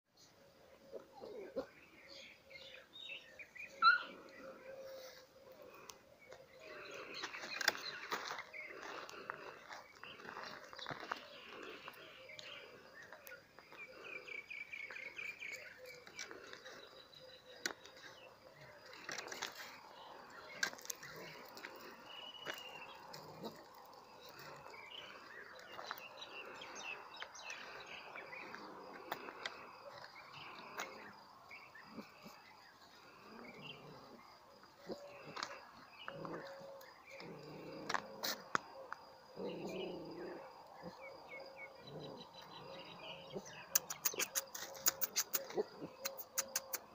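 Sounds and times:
footsteps on gravel: 6.6s - 12.7s, 17.7s - 31.2s.

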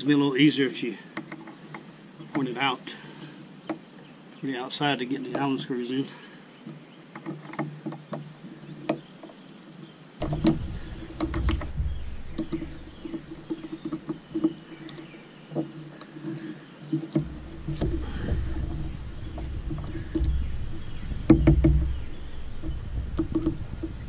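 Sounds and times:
low rumble: 10.2s - 14.9s, 17.2s - 24.0s.

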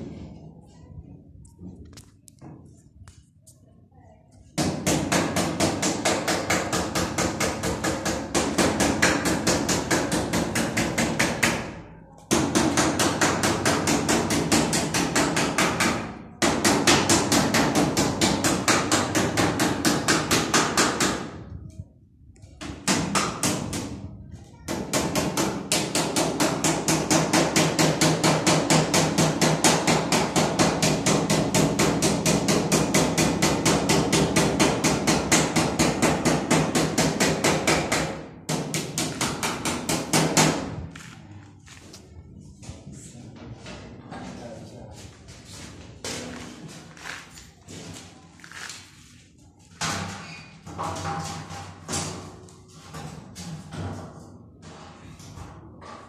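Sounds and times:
hammer striking iron sheet: 4.6s - 21.4s, 24.8s - 40.8s.

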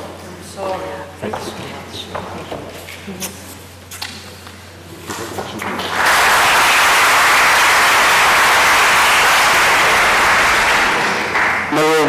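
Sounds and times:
audience clapping: 5.4s - 12.0s.

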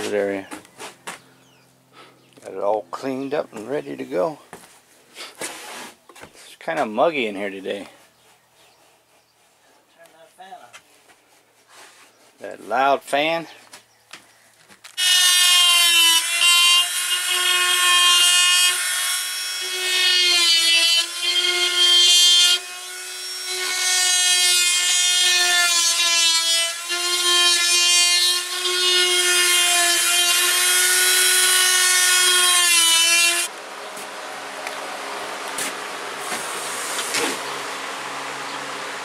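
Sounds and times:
multi-tool cutting drywall: 15.0s - 33.5s, 35.6s - 37.5s.

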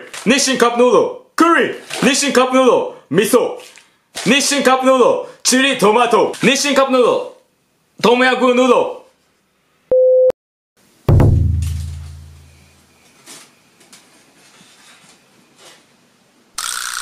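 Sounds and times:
short steady beep: 9.9s - 10.3s
deep boom: 11.1s - 12.5s.

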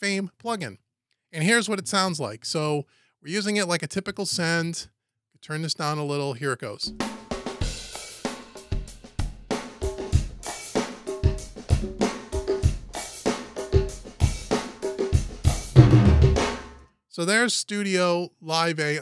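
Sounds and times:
drum kit playing groove: 6.9s - 16.8s.

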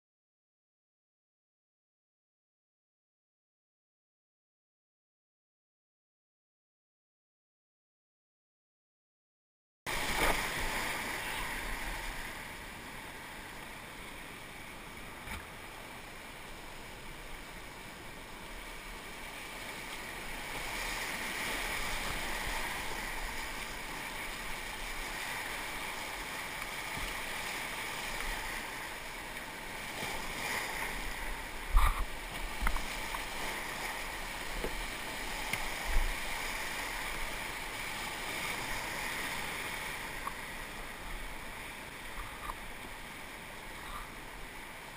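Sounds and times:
whitewater rapids rushing: 9.9s - 15.0s, 15.6s - 44.9s.

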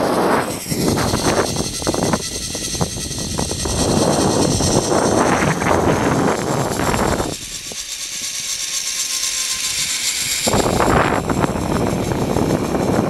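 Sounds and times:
wind buffeting microphone: 0.0s - 8.4s, 9.7s - 13.0s
zipline trolley hissing on cable: 0.0s - 13.0s.

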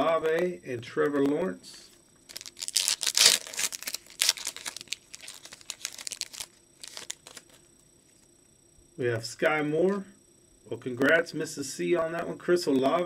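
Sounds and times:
foil wrapper crinkling and tearing: 2.3s - 7.6s.

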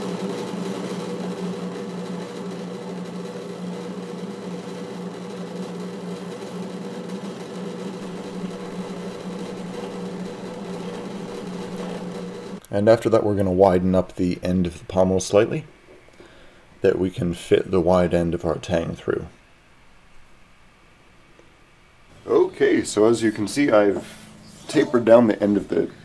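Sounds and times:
drill press motor hum: 0.0s - 12.7s
drill bit cutting steel: 3.4s - 12.6s.

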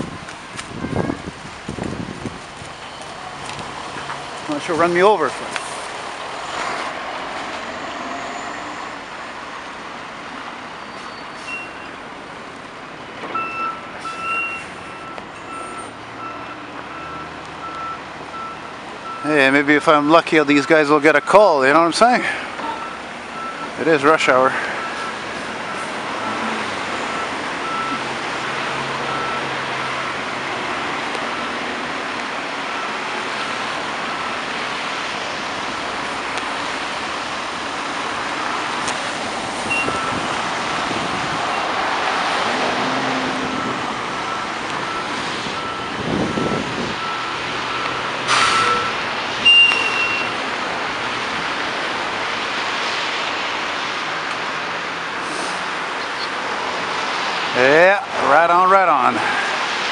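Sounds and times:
reversing alarm beeping: 13.4s - 19.3s, 22.6s - 23.8s, 24.7s - 26.5s, 27.1s - 28.0s, 29.0s - 29.6s, 39.7s - 40.3s, 43.6s - 50.4s
diesel engine running low: 22.0s - 59.9s.

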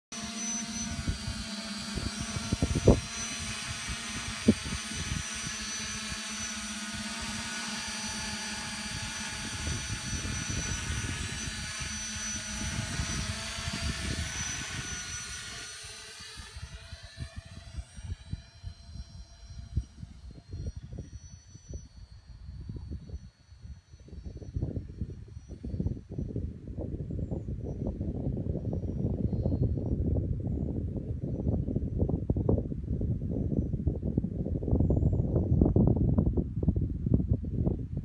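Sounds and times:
drone propellers whining: 0.1s - 26.2s
wind rumbling on microphone: 0.2s - 38.0s.

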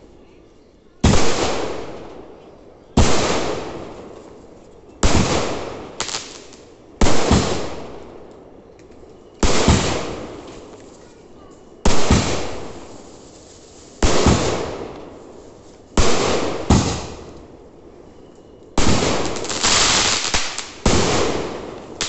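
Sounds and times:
fireworks bursting: 1.0s - 2.3s, 3.0s - 4.4s, 5.0s - 8.2s, 9.4s - 10.9s, 11.8s - 17.6s, 18.8s - 22.0s.

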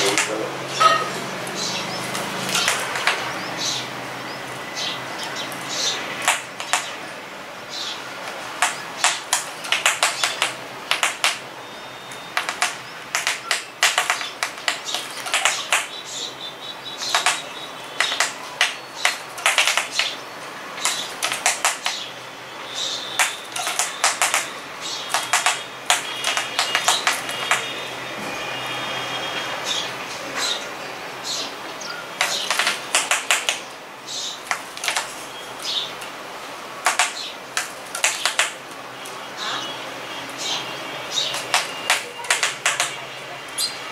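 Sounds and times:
beaks tapping on glass: 2.5s - 3.3s, 6.2s - 7.0s, 8.6s - 11.4s, 12.3s - 16.0s, 17.0s - 20.2s, 20.8s - 22.1s, 23.2s - 24.5s, 25.1s - 27.7s, 32.2s - 33.7s, 36.8s - 38.6s, 41.3s - 43.0s.

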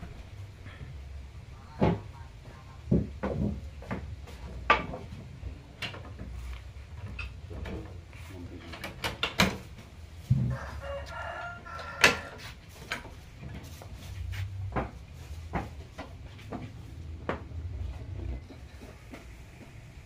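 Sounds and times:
rooster crowing: 10.5s - 12.6s.

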